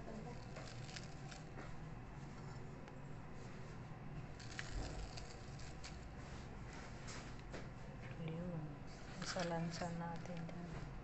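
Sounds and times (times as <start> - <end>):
leaves rustling and crinkling: 4.4 - 6.1.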